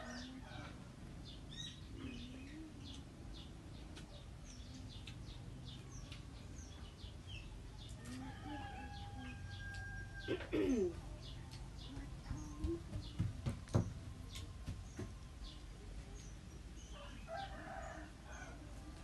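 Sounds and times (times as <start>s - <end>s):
small birds chirping: 0.0s - 19.0s
low cooing call: 1.9s - 3.2s, 8.0s - 11.1s.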